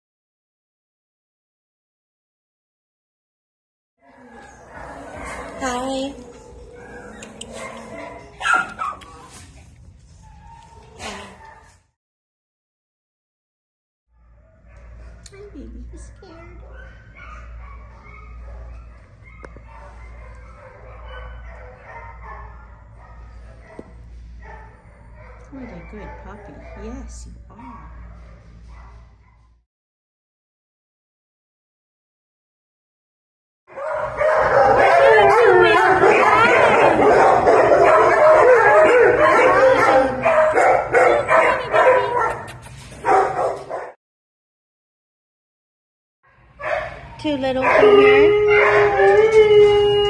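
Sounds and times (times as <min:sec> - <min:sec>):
dogs barking and yipping: 0:04.1 - 0:09.5, 0:14.2 - 0:15.3, 0:16.3 - 0:29.5, 0:33.7 - 0:44.0, 0:46.3 - 0:50.0
steady low hum: 0:14.2 - 0:29.6.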